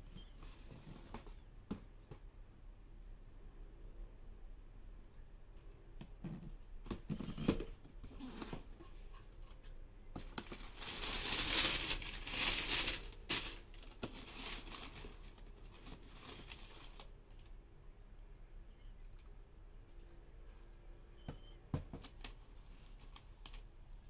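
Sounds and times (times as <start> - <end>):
tissue paper crinkling: 10.4 - 17.2.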